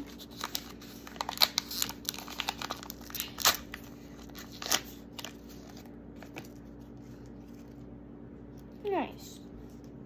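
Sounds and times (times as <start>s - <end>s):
paper wrapper crinkling: 0.0s - 7.8s.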